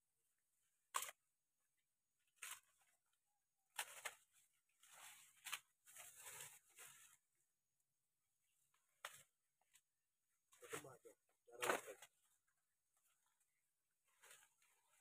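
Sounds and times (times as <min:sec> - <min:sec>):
leaves rustling and tearing: 0:02.2 - 0:03.1, 0:03.7 - 0:07.2.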